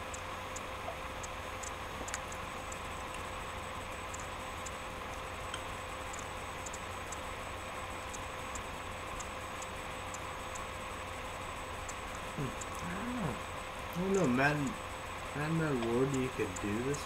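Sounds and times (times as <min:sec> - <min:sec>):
light ticks: 0:00.0 - 0:03.3, 0:04.1 - 0:07.3, 0:08.1 - 0:10.7, 0:15.8 - 0:16.8
background hum and hiss: 0:00.0 - 0:17.0
faint steady tones: 0:00.0 - 0:17.0.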